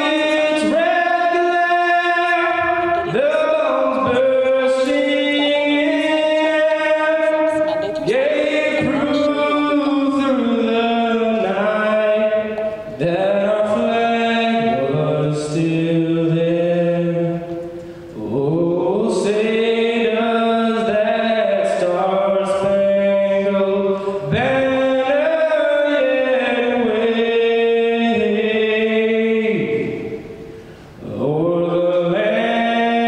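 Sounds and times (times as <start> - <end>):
voices chanting long notes: 0.0 - 15.4.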